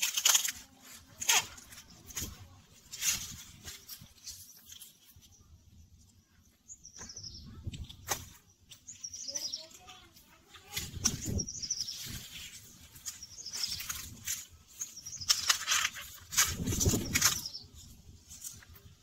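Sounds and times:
corn leaves rustling and snapping: 0.0s - 5.3s, 7.6s - 19.0s
small birds chirping: 0.1s - 19.0s.

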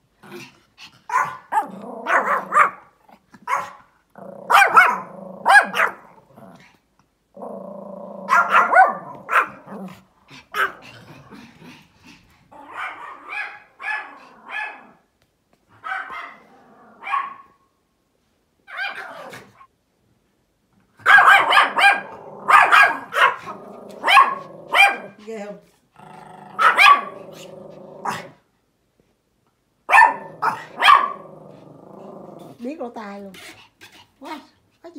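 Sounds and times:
dog growling: 0.2s - 3.2s, 4.1s - 13.3s, 16.4s - 17.0s, 21.9s - 28.4s, 30.1s - 32.7s
small dogs barking sharply: 1.1s - 6.2s, 8.3s - 9.8s, 12.6s - 15.0s, 15.8s - 17.6s, 21.0s - 25.2s, 26.5s - 28.4s, 29.9s - 31.3s.

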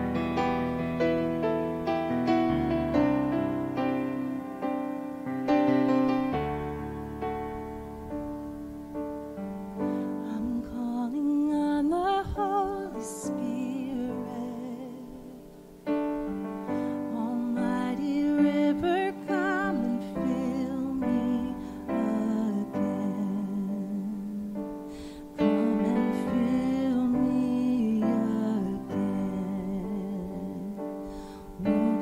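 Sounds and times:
electric piano chords: 0.0s - 32.0s
person singing with vibrato: 9.8s - 15.9s, 16.6s - 32.0s.

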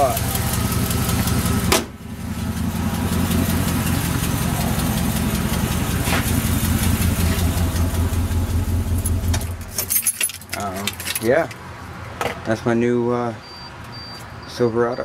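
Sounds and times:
truck engine idling: 0.0s - 10.5s
hood slamming shut: 1.6s - 2.0s.

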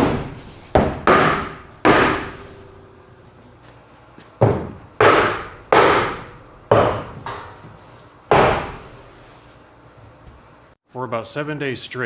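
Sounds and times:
hammer striking wooden block: 0.0s - 2.5s, 4.4s - 7.4s, 8.3s - 8.8s.

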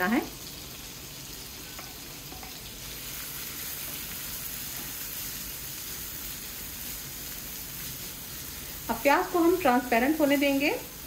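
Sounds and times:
onion sizzling in frying pan: 0.0s - 11.0s
spatula stirring in pan: 1.3s - 10.1s.

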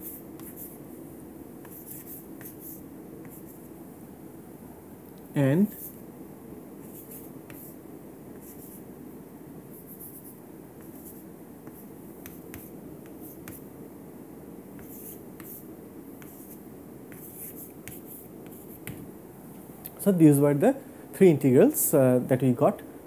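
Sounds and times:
chalk scratching on chalkboard: 0.0s - 0.8s, 1.6s - 3.6s, 6.8s - 7.8s, 8.4s - 8.8s, 9.8s - 13.6s, 14.8s - 19.0s
low room hum: 0.0s - 23.0s.

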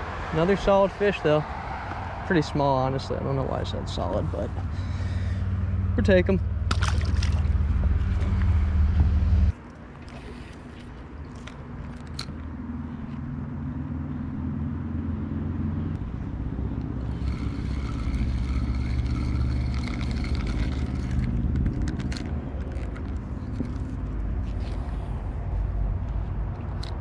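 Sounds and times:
low motor drone: 3.8s - 27.0s.

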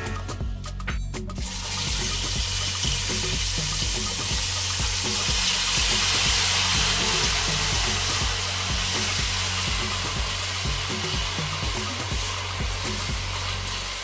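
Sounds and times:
hot oil sizzling: 1.3s - 14.0s.

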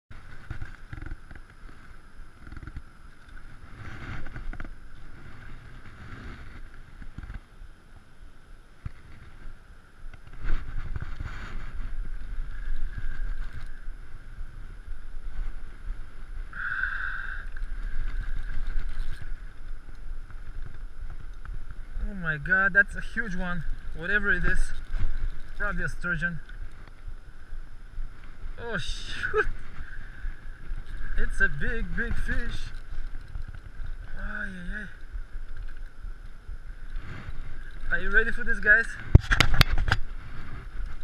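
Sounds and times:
wind rumbling on microphone: 0.1s - 41.0s.

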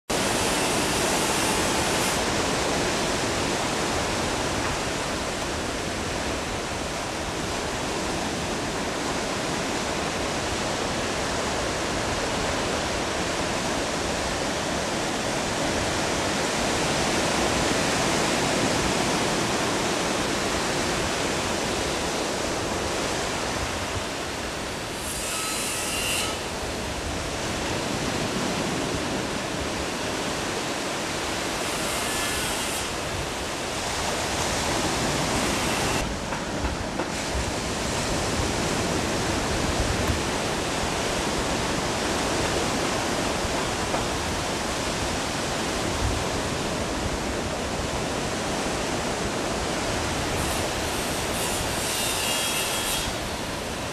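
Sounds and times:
ocean surf rushing: 0.1s - 25.0s, 33.0s - 50.9s.

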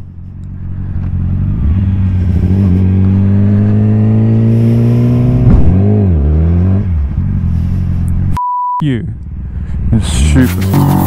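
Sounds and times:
motorcycle engine accelerating: 0.0s - 8.4s.

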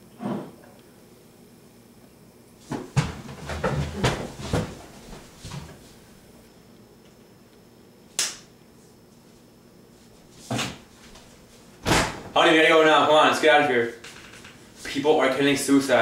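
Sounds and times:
wooden chair knocking and scraping: 2.7s - 5.8s
footsteps on floor: 2.7s - 6.0s.

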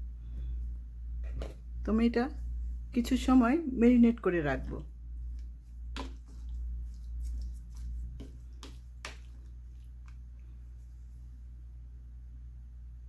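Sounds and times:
low steady hum: 0.0s - 13.0s
wet squishing of fish mixing: 4.7s - 10.9s.

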